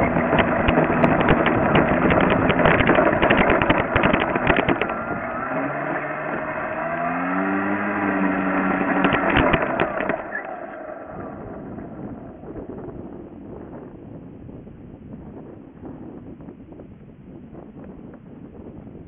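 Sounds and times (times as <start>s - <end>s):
knocks and rattles: 0.0s - 5.6s, 8.7s - 10.5s
model plane motor and propeller: 0.0s - 14.6s.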